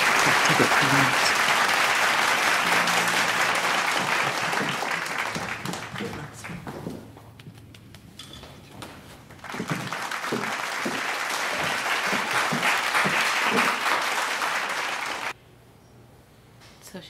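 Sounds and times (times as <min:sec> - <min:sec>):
crowd applauding: 0:00.0 - 0:07.0, 0:09.2 - 0:15.4.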